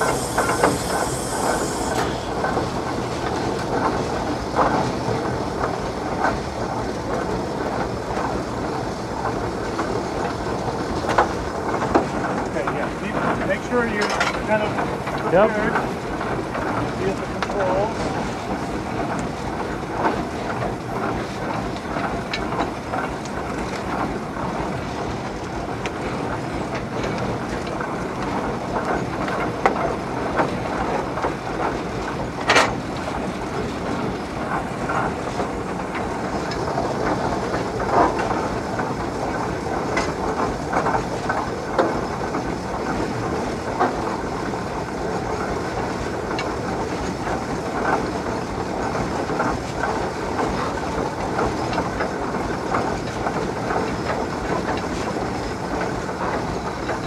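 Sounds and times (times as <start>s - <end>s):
steam hissing: 0.0s - 22.6s
steam engine gearing clatter: 0.0s - 57.0s.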